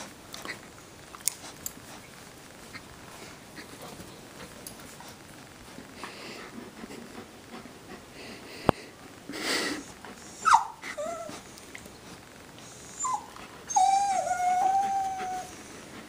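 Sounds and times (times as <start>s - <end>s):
dog whining: 10.2s - 11.5s, 12.6s - 15.7s.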